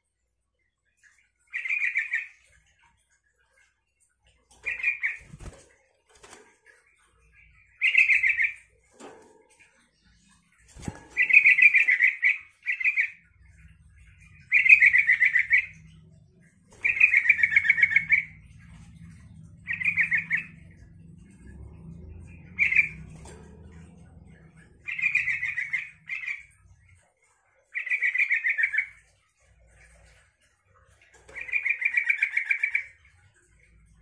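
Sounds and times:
bulbul chattering song: 0:16.7 - 0:18.6.

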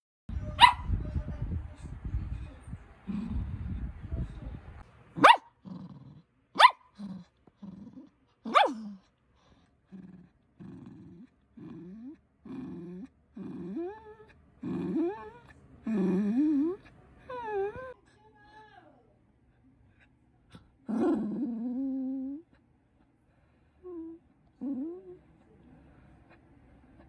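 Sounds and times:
dog barking sharply: 0:00.6 - 0:00.9, 0:05.2 - 0:05.6, 0:06.6 - 0:06.9, 0:08.5 - 0:08.8
dog growling and whining: 0:05.3 - 0:06.3, 0:06.9 - 0:09.1, 0:09.8 - 0:18.0, 0:20.5 - 0:22.6, 0:23.8 - 0:25.3.

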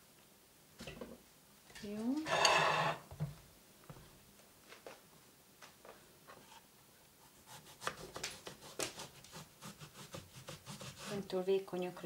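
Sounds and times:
knife cutting on wooden board: 0:07.5 - 0:11.2.

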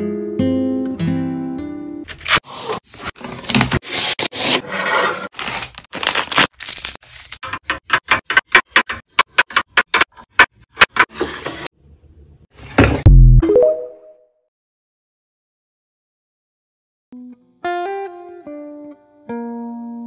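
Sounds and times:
plastic wrapping crinkling: 0:05.3 - 0:07.4.

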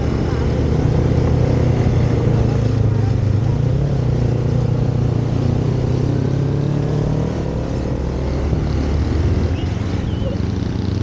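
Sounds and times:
wind and road noise: 0:00.0 - 0:11.0
motorcycle engine running: 0:07.7 - 0:11.0.

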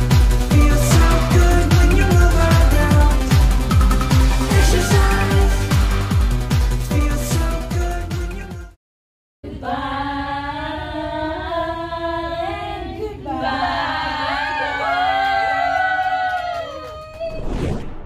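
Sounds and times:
music track: 0:00.0 - 0:08.7
women singing unaccompanied: 0:09.4 - 0:14.8.

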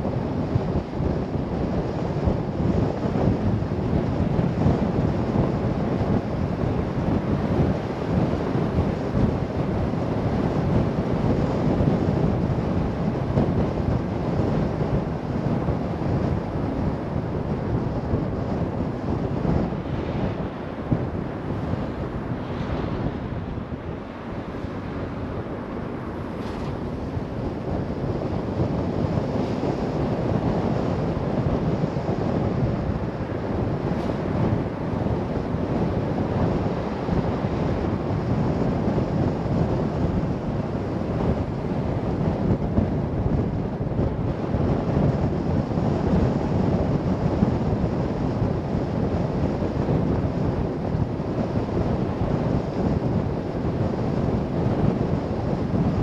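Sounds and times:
wind buffeting microphone: 0:00.0 - 0:56.0
car road noise: 0:06.5 - 0:39.3.

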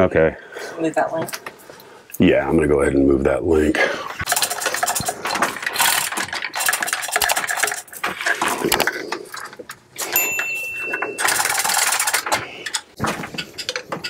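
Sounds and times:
chain rattling through hoist: 0:04.3 - 0:13.9.

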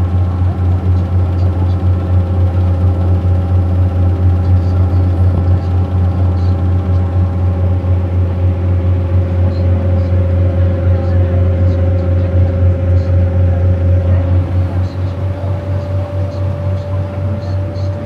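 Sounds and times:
boat engine droning: 0:00.0 - 0:18.0.

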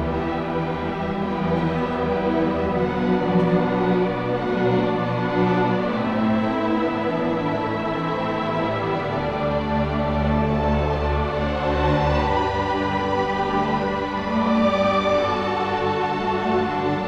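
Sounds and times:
orchestra playing: 0:00.0 - 0:17.0.

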